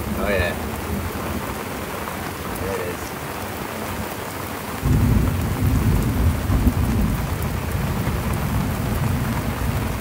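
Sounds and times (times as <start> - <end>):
heavy rain hissing: 0.0 - 10.0
rumble of thunder: 4.8 - 10.0.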